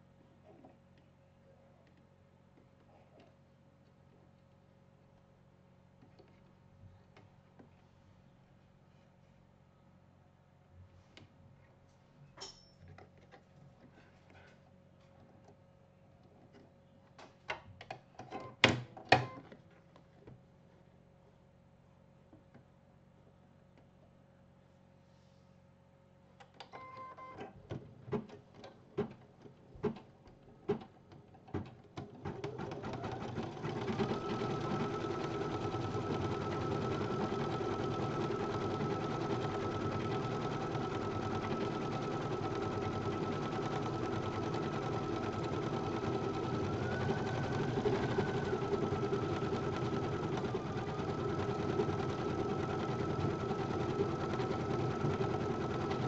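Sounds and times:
embroidery machine stitching: 32.0 - 56.0.

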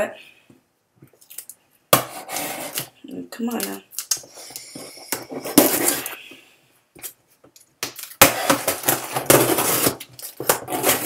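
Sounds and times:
cardboard scraping and rustling: 4.8 - 6.1, 8.4 - 11.0.

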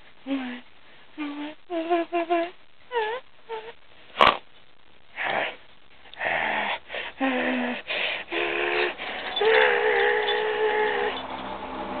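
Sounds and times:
dog growling: 5.2 - 11.2
dog whining and yowling: 8.3 - 11.4.

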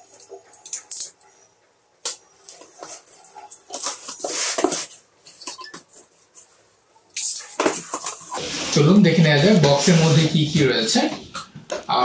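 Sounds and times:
cardboard flaps scraping: 7.6 - 10.4.

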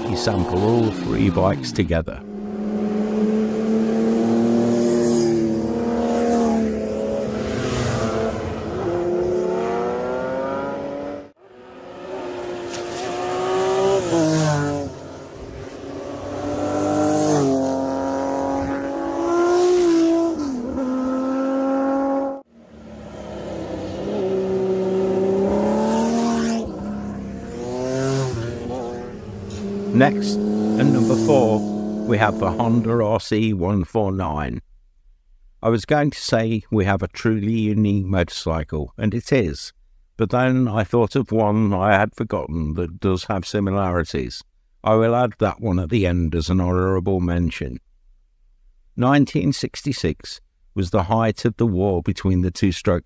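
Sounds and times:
motorcycle engine accelerating: 0.0 - 32.9.

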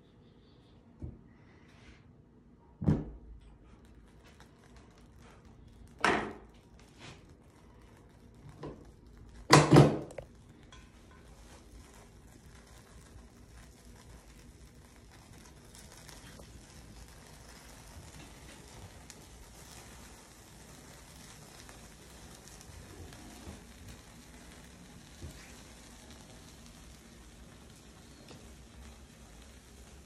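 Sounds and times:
objects knocking on hard surface: 9.5 - 10.2.

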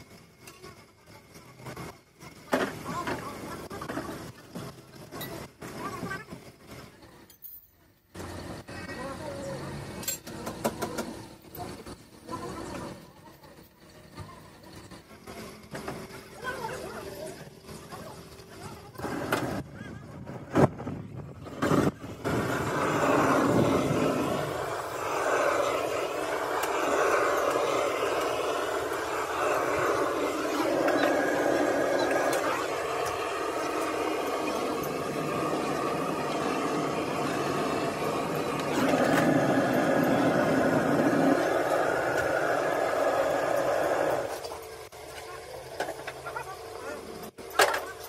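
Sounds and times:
gas torch flame roaring: 0.0 - 7.2, 8.1 - 48.0
compressed air hissing from hose: 21.7 - 44.5.

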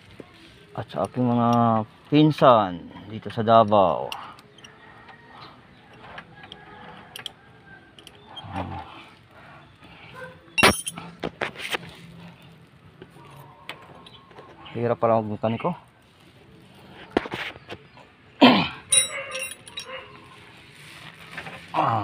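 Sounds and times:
wrench clinking on metal: 5.9 - 7.4, 8.0 - 8.2, 10.6 - 11.1, 18.9 - 20.0.

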